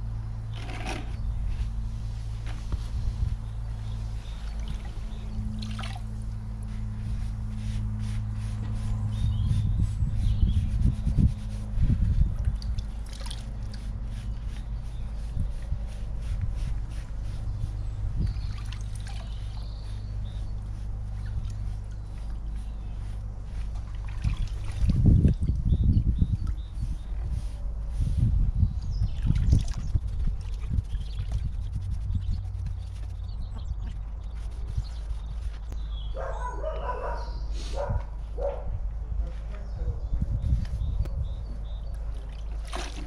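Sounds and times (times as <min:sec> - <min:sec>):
steady low hum: 0:00.0 - 0:43.0
liquid trickling and sloshing in bucket: 0:00.5 - 0:01.3, 0:04.2 - 0:06.7, 0:12.4 - 0:14.7, 0:18.2 - 0:19.8, 0:23.3 - 0:25.7, 0:29.1 - 0:31.6, 0:41.8 - 0:43.0.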